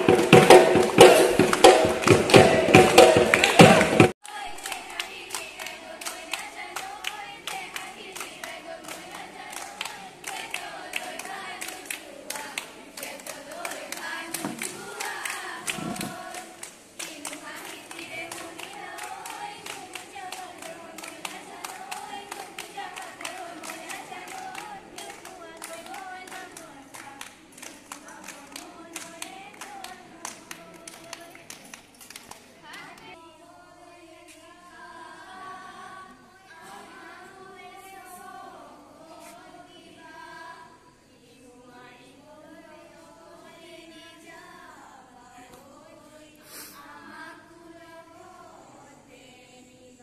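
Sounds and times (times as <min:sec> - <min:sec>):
hands clapping in rhythm: 0:00.0 - 0:33.2
girls singing together: 0:00.0 - 0:50.0.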